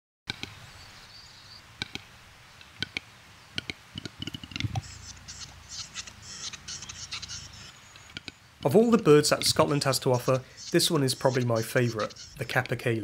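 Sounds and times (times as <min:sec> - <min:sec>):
high hissing scraping bird call: 0:04.8 - 0:08.1, 0:09.4 - 0:12.6.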